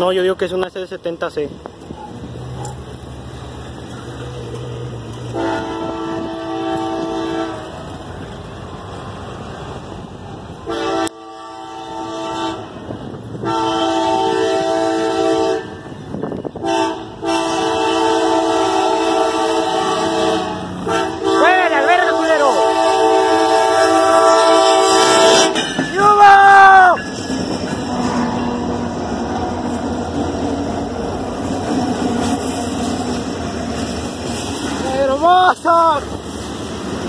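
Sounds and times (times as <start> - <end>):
locomotive air horn blasts: 5.3 - 7.8, 10.7 - 12.8, 13.4 - 15.9, 16.6 - 25.6, 27.8 - 28.8.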